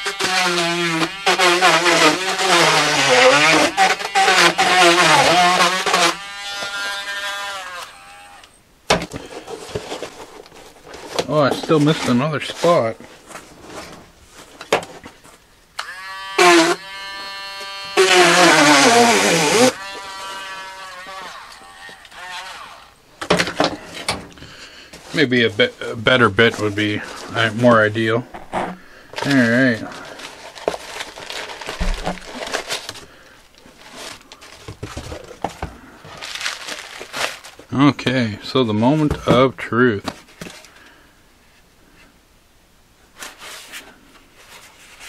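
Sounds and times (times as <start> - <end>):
tool bit grinding cardboard: 0.0 - 8.5, 15.8 - 23.0
paper and cardboard rustling: 9.0 - 15.4, 23.3 - 37.8, 43.2 - 45.0
power tool motor whine: 15.8 - 23.0
dull thump: 31.8 - 32.3.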